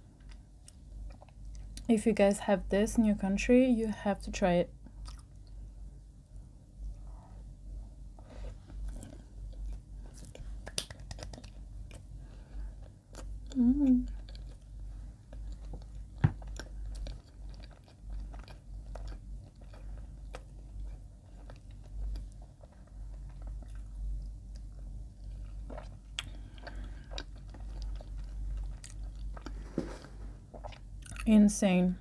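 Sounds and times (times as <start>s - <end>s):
steady low hum: 0.0s - 32.0s
chewing bread: 0.1s - 1.9s, 4.9s - 5.7s, 8.3s - 31.3s
sticky mouth clicks and smacks: 10.2s - 12.0s.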